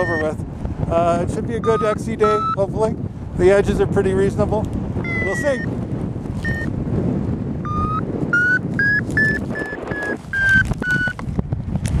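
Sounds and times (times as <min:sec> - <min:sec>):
variometer beeping: 0:00.0 - 0:00.4, 0:01.4 - 0:02.7, 0:05.0 - 0:05.8, 0:06.4 - 0:06.8, 0:07.6 - 0:11.2
wind rush on microphone: 0:00.0 - 0:12.0.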